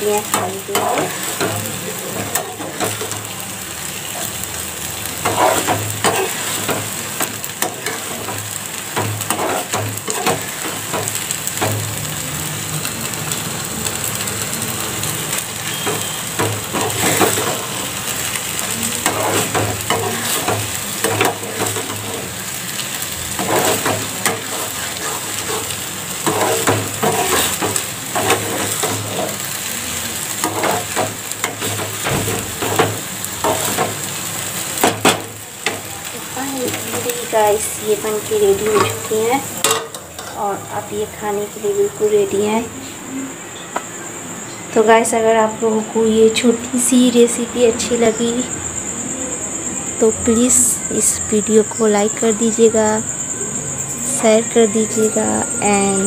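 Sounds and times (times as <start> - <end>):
vermicelli sizzling in a pan: 0.0 - 56.0
spatula scraping a pan: 0.2 - 3.4, 5.1 - 11.8, 15.6 - 34.2.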